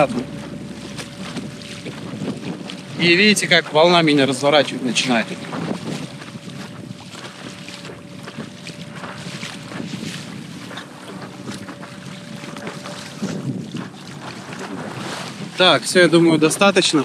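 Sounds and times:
water splashing against board: 0.0 - 17.0
wind on microphone: 0.0 - 17.0.

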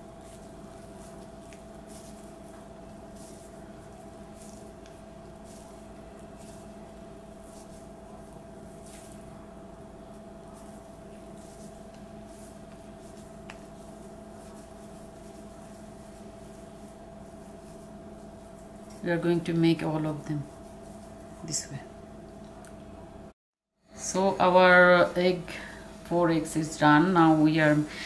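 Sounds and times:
hands squishing mashed potato: 0.0 - 19.2
steady background hum: 0.0 - 28.0.

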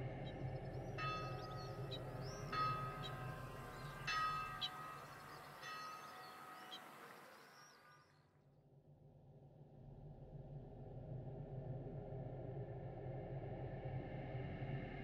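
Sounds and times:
low hum: 0.0 - 15.0
bell-like chime tones: 1.0 - 6.8.

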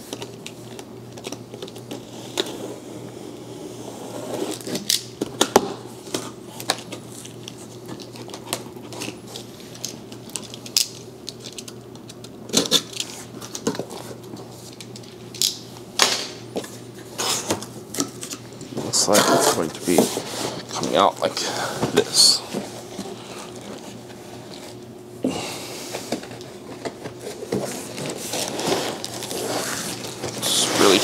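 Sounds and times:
box cutter scraping tape and cardboard: 4.1 - 4.9, 27.5 - 31.0.

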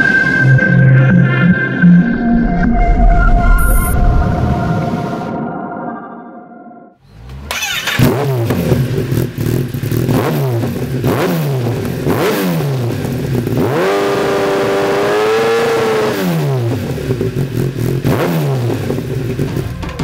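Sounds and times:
motorcycle engine revving: 7.0 - 20.0.

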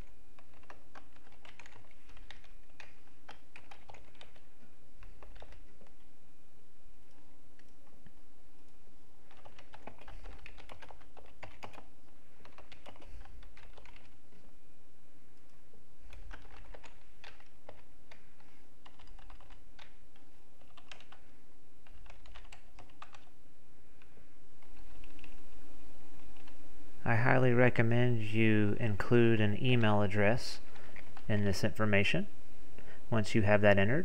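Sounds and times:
computer keyboard typing: 0.0 - 6.1, 9.2 - 14.5, 16.0 - 23.3, 24.6 - 25.5, 26.2 - 26.6, 30.7 - 31.3.

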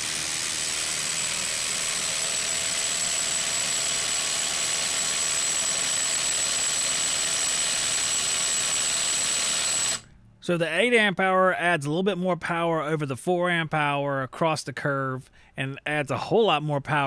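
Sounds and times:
impact driver rattling: 0.0 - 10.1.

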